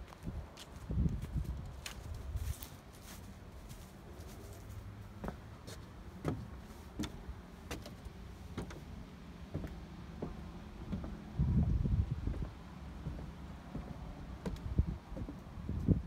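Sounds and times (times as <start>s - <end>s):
footsteps on wooden boards: 0.0s - 16.0s
low steady rumble: 6.0s - 16.0s.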